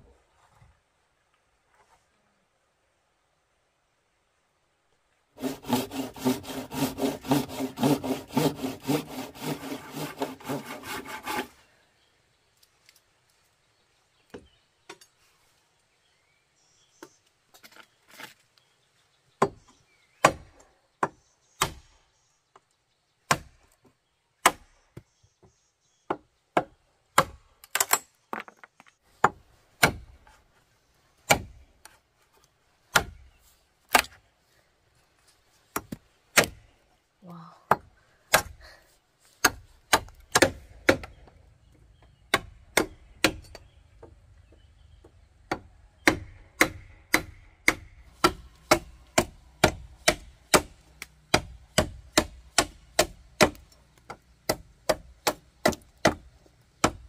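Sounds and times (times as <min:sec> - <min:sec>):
hand tool strokes on wood: 0:05.4 - 0:11.6.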